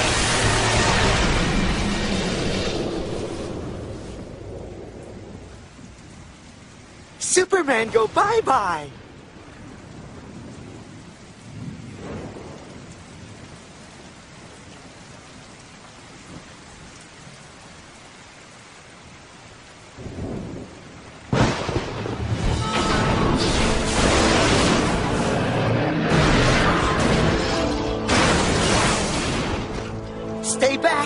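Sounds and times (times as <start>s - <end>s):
low thunder rumbles: 0.0s - 7.2s, 8.0s - 17.8s, 19.9s - 30.1s
steady rain: 0.0s - 31.0s
loud thunder crack: 10.0s - 12.9s, 21.3s - 30.0s.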